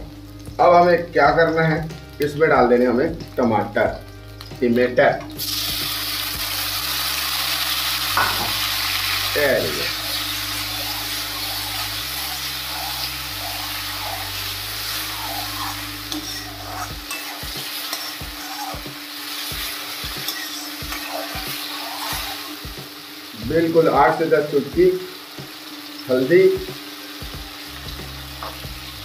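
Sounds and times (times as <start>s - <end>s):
vegetables sizzling in oil: 0.0s - 29.0s
spoon scraping pan: 9.9s - 22.6s.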